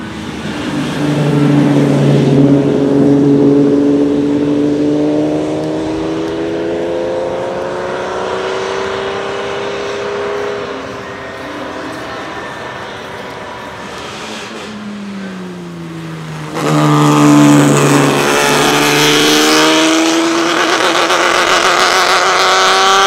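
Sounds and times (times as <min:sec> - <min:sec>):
race car engine accelerating: 0:00.0 - 0:23.0
tyres hissing on wet tarmac: 0:10.4 - 0:15.4.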